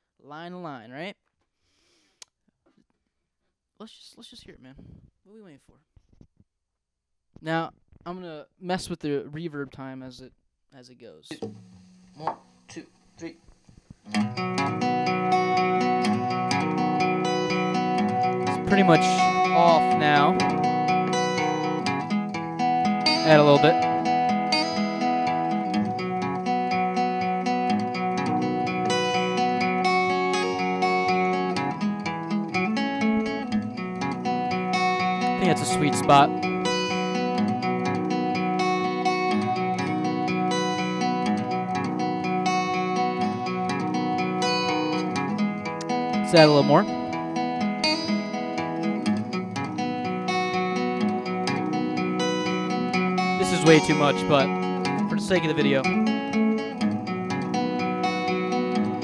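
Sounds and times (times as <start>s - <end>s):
strummed guitar with spring reverb: 14.1s - 59.0s.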